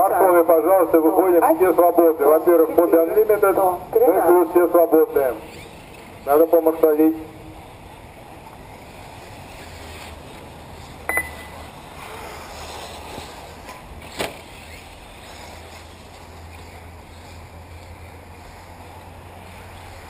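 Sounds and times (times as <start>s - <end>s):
small engines buzzing and revving: 5.2s - 6.3s, 7.6s - 20.0s
short beep: 11.1s - 11.6s.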